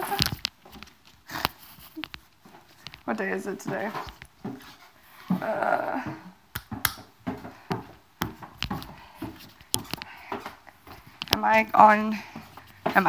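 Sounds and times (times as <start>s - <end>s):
sharp clicks or taps: 6.5s - 7.1s.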